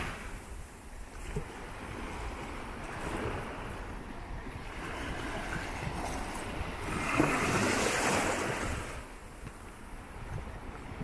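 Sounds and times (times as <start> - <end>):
small waves breaking on shore: 0.0 - 11.0
wind on microphone: 0.0 - 11.0.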